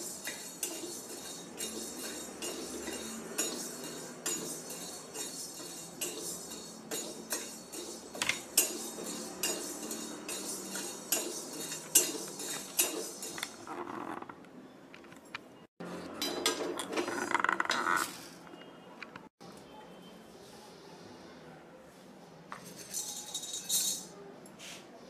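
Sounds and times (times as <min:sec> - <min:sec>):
peppercorns clinking in pan: 0:00.0 - 0:13.6, 0:22.6 - 0:24.1
spatula scraping metal pan: 0:00.0 - 0:14.3.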